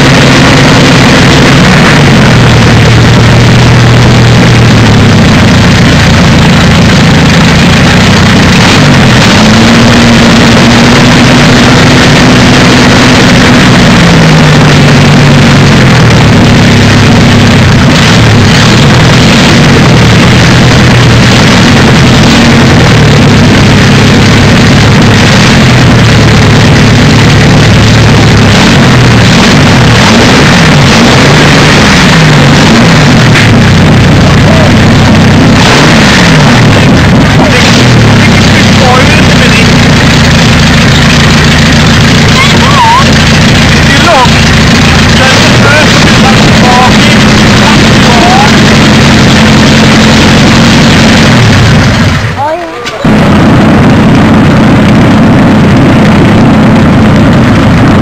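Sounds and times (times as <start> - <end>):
aero engine revving: 0.0 - 58.0.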